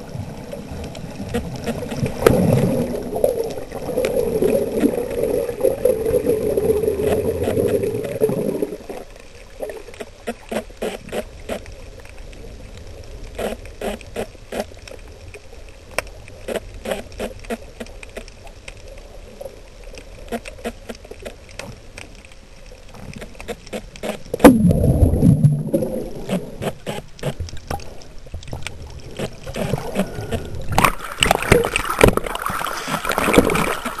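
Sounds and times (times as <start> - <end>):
sea water splashing: 0.0 - 34.0
underwater bubbling rush: 0.0 - 34.0
gurgling pops: 23.2 - 27.8, 29.1 - 34.0.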